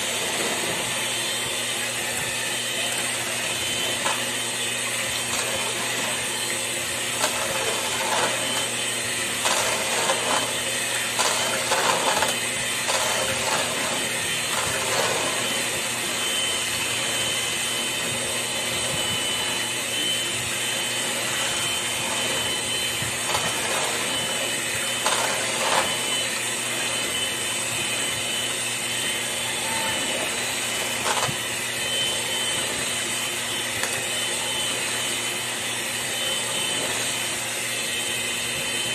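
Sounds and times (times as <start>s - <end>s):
electric hand mixer whirring: 0.0s - 38.9s.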